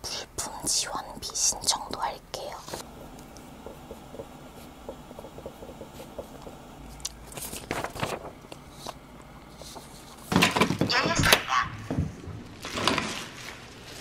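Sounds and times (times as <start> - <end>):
paper scratching and ticks: 2.5 - 10.3
paper rustling: 6.9 - 10.8, 12.5 - 14.0.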